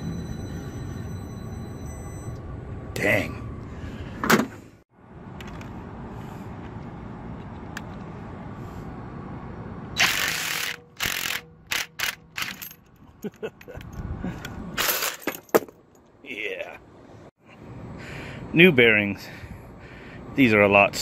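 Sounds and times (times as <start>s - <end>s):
ratchet wrench clicking: 10.0s - 12.8s.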